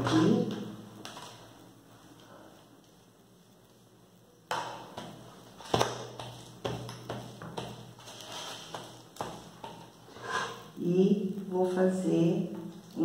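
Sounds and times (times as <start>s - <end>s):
paint roller rolling in tray: 6.3s - 10.6s.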